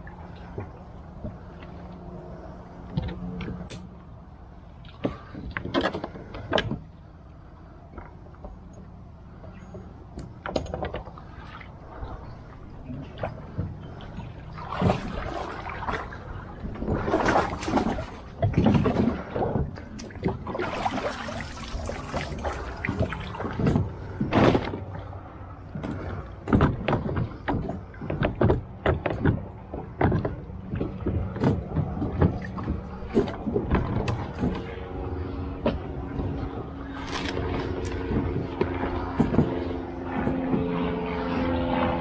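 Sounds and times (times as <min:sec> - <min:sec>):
distant motor hum: 0:00.0 - 0:42.0
gear knocking on plastic kayak: 0:25.8 - 0:34.8.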